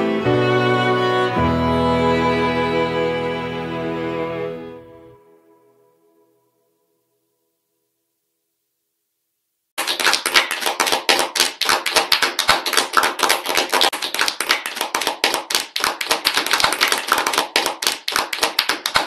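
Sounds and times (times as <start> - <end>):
crowd applauding: 9.8 - 19.0.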